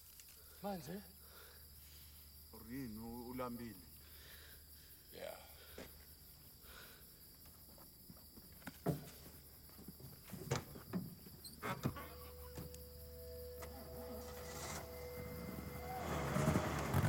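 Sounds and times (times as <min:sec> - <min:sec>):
crickets chirping: 0:00.0 - 0:17.0
knocks and rustles: 0:08.5 - 0:12.8
steady low hum: 0:11.8 - 0:17.0.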